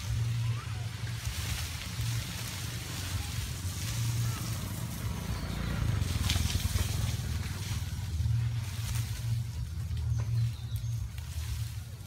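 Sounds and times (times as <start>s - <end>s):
low rumbling drone: 0.0s - 12.0s.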